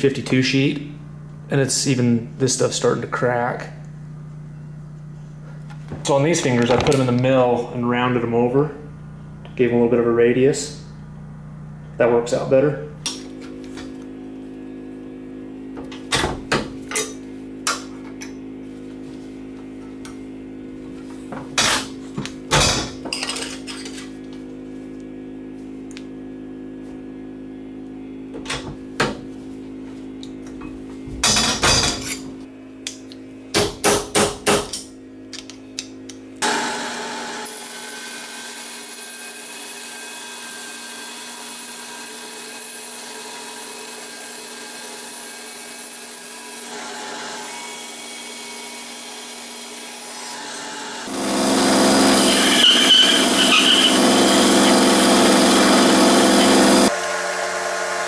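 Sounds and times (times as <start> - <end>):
steady hum: 0.0 - 36.4
band saw running: 36.4 - 58.0.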